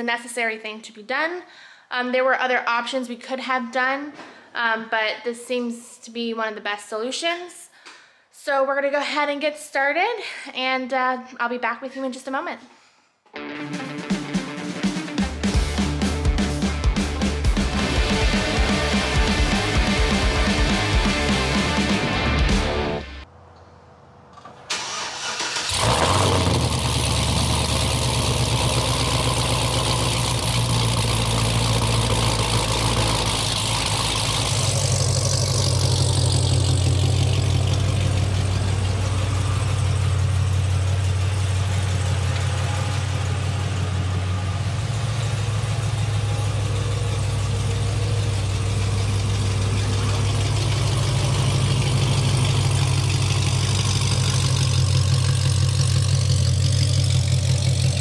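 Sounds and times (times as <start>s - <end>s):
car engine starting and idling: 14.0s - 58.0s.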